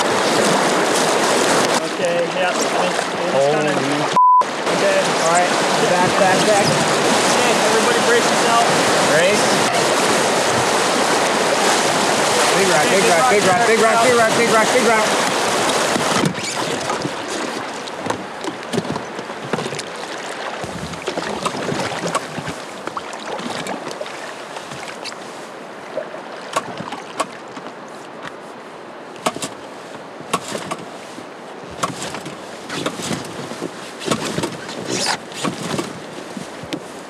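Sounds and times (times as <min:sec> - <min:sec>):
river water lapping around boat: 0:00.0 - 0:37.0
sharp knocks and clicks of gear: 0:30.3 - 0:30.9.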